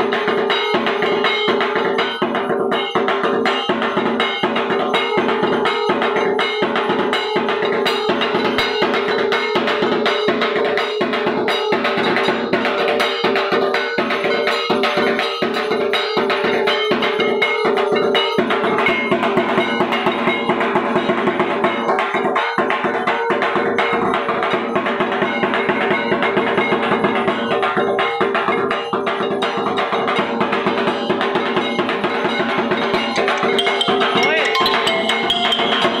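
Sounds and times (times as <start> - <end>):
bells and percussion clanging: 0.0 - 36.0
metallic ringing: 31.6 - 36.0.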